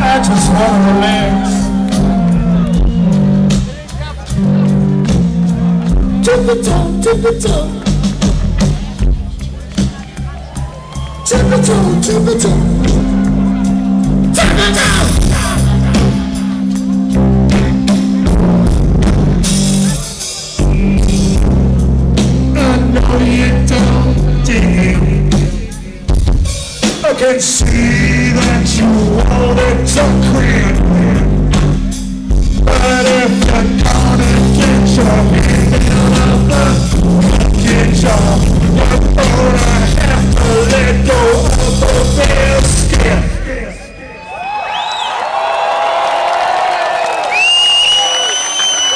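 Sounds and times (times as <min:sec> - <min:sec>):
live rock band playing: 0:00.0 - 0:43.6.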